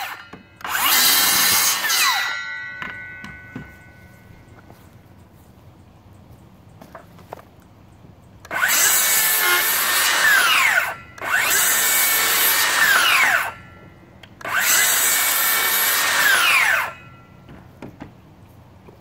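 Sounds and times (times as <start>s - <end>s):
circular saw cutting wood: 0.0s - 3.5s, 8.5s - 13.7s, 14.4s - 17.2s.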